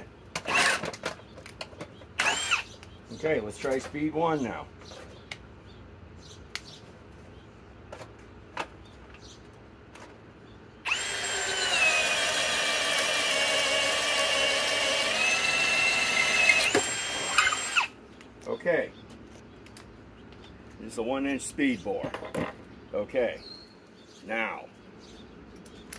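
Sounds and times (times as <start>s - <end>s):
drill boring through wood: 0.5s - 1.0s, 2.2s - 2.7s, 10.9s - 18.0s.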